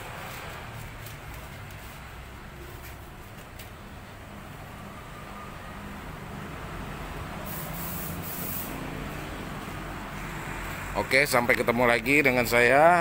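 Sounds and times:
compressed air hissing: 7.4 - 8.9.

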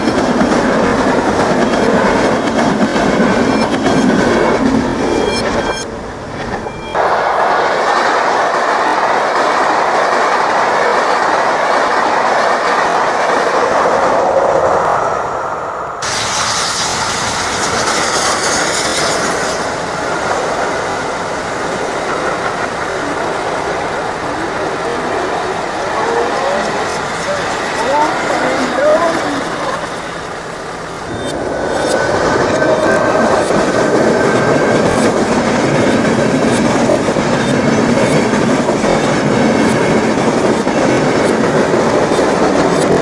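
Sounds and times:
wheel clatter over rail joints: 0.0 - 14.0, 16.0 - 43.0
trains passing at speed: 0.0 - 43.0.

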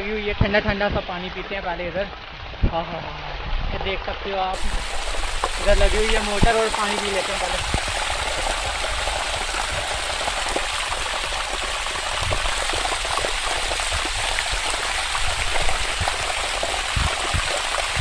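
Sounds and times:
water gushing onto concrete: 4.5 - 18.0.

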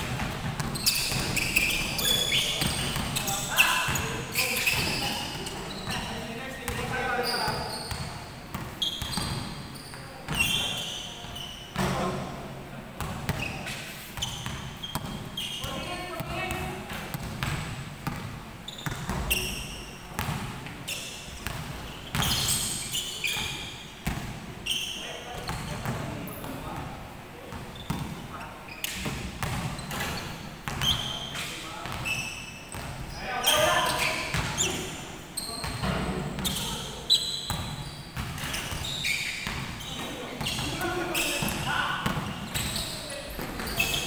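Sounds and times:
basketball bouncing: 0.0 - 3.3, 7.9 - 9.5, 14.2 - 19.3, 20.2 - 20.5, 21.4 - 22.6, 29.0 - 30.9
shoes squeaking on hardwood court: 0.0 - 12.4, 13.0 - 26.8, 27.4 - 44.0.

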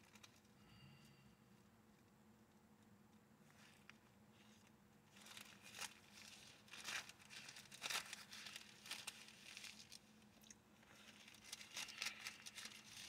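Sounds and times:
paper pages rustling: 3.5 - 13.0.

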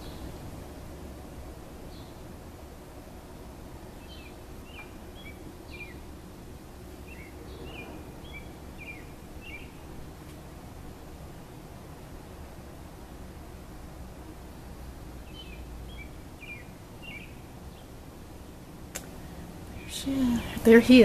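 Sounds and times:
low outdoor rumble: 0.0 - 21.0
bird chirping: 4.0 - 6.1, 7.0 - 9.9, 15.2 - 17.9.

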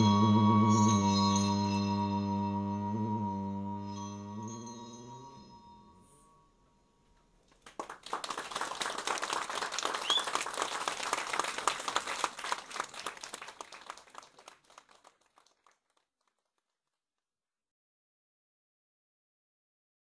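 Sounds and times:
people clapping: 7.5 - 17.0.

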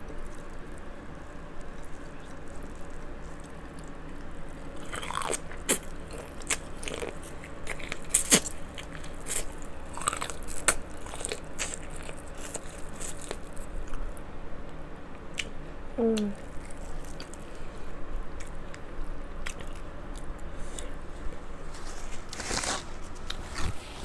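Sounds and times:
chewing and mouth sounds: 1.6 - 14.0, 16.2 - 17.6, 18.4 - 21.0.

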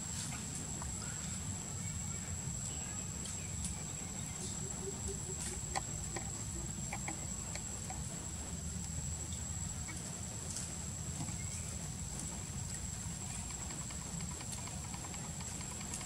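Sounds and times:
quick low clucking pulses: 4.4 - 8.6
faint clicks: 12.2 - 16.0.

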